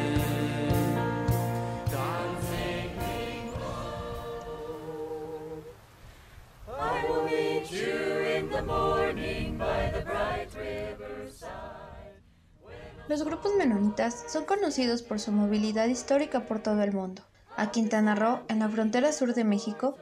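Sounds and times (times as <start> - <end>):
choir singing a hymn: 0.0 - 5.8, 6.6 - 20.0.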